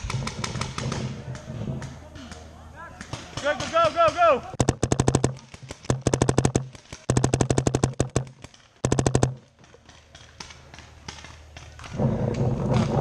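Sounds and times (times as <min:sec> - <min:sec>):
paintball marker rapid firing: 0:00.0 - 0:01.2, 0:04.6 - 0:11.6
low hum: 0:04.6 - 0:09.6.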